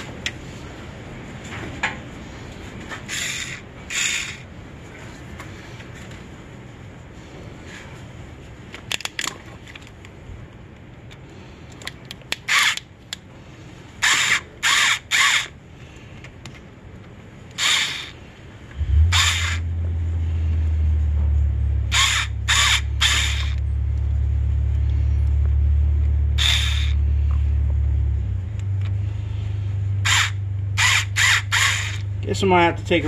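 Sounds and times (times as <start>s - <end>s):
short rasping bursts: 3.0s - 4.5s, 14.0s - 15.5s, 17.6s - 18.2s, 18.8s - 19.7s, 21.9s - 23.6s, 26.4s - 27.0s, 30.0s - 32.1s
engine starting and humming: 17.6s - 32.4s.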